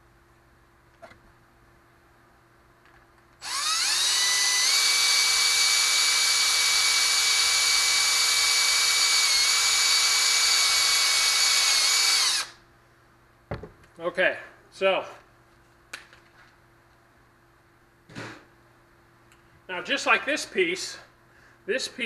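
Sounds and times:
drill motor whine: 0:03.4 - 0:12.6.

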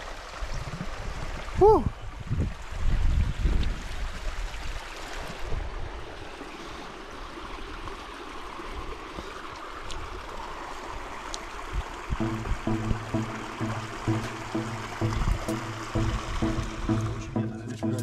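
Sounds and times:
stream running: 0:00.0 - 0:18.0
low rumble: 0:12.2 - 0:18.0.

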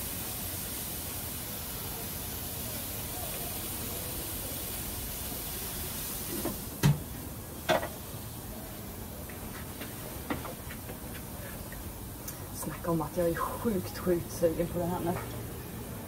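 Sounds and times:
meat sizzling on a grill: 0:00.0 - 0:16.0
grill lid clunks: 0:07.7 - 0:08.0.

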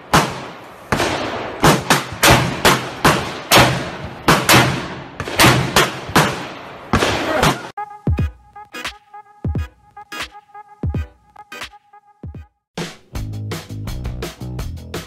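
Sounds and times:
electronic music: 0:07.8 - 0:12.6.

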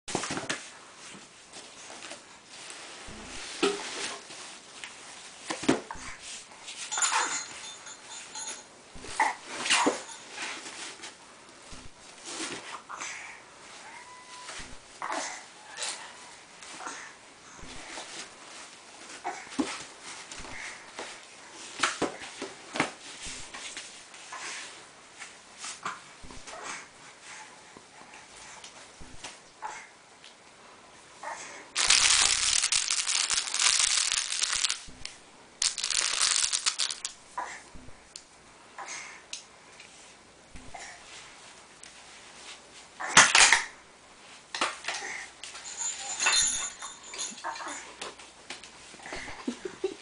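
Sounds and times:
tissues rustling: 0:31.8 - 0:37.2.

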